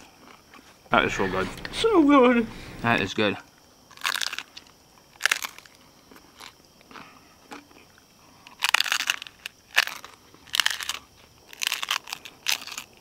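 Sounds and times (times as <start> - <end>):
taco shell crunching: 3.9 - 13.0.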